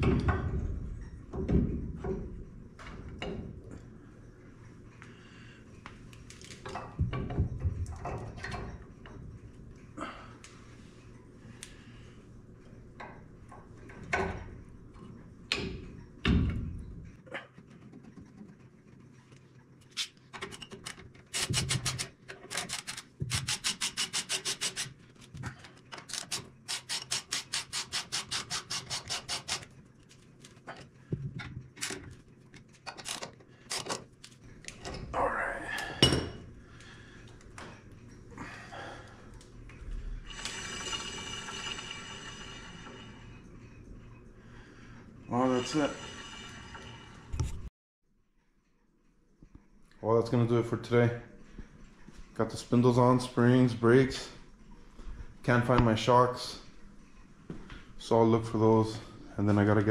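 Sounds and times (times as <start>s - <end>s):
hand ratchet clicking: 21.3s - 24.9s, 26.0s - 29.7s.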